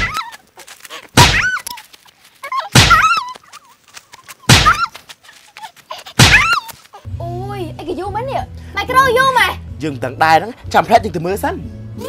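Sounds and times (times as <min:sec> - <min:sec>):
punch impacts: 0:01.2 - 0:01.6, 0:02.7 - 0:03.2, 0:04.5 - 0:04.8, 0:06.2 - 0:06.6.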